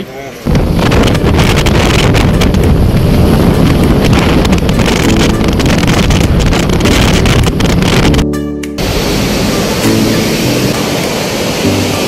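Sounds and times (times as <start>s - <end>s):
road noise: 0.0s - 12.0s
wind buffeting microphone: 0.4s - 8.2s.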